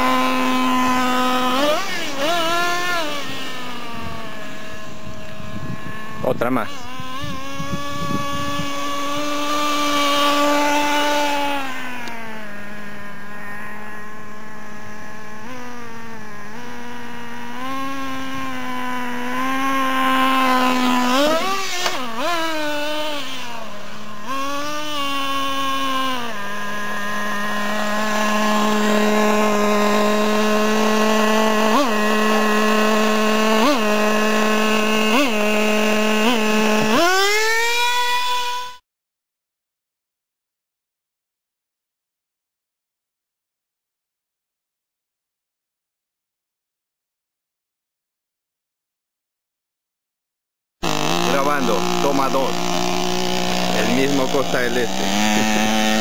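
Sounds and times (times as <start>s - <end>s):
small nitro engine revving: 0.0s - 38.8s, 50.8s - 56.0s.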